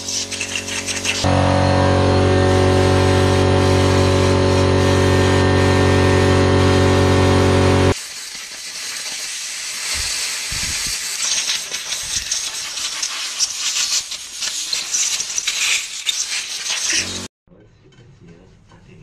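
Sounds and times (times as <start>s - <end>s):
torch hissing with crackles: 7.8s - 17.3s.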